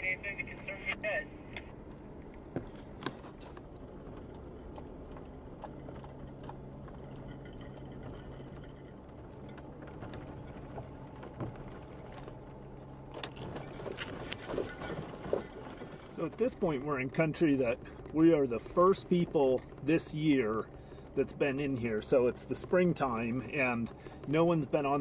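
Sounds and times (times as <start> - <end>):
engine humming: 0.0 - 25.0
knocks and rattles: 13.1 - 17.1.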